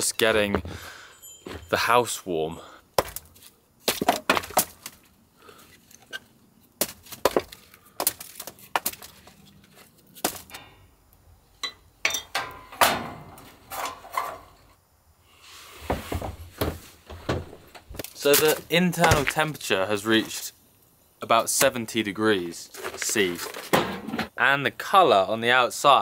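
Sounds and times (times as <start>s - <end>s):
hatchet chopping briquettes: 3.0s - 5.0s.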